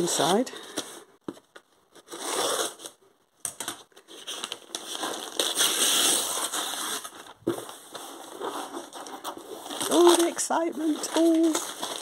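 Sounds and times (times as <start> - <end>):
paper crackling and tearing: 3.6 - 12.0.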